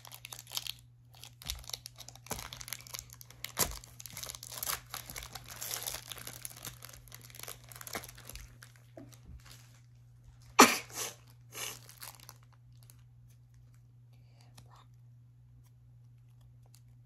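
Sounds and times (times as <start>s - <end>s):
foil wrapper crinkling: 0.0s - 10.1s, 11.1s - 13.9s.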